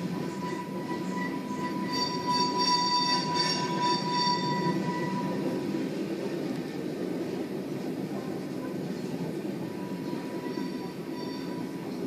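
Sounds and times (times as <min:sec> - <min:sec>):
high wheel squeal: 0:00.0 - 0:05.6, 0:09.7 - 0:12.0
train wheels rumbling on rail: 0:00.0 - 0:12.0.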